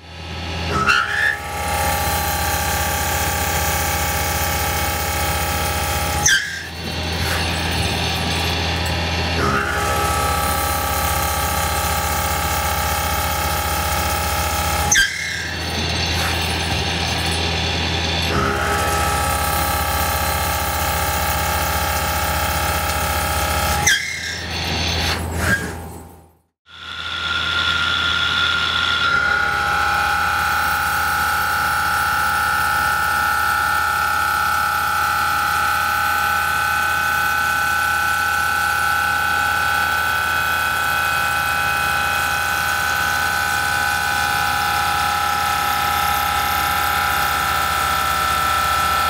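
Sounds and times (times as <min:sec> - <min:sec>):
milling machine whine: 0:00.0 - 0:25.7, 0:26.7 - 0:49.0
cutter squeal: 0:00.6 - 0:26.0.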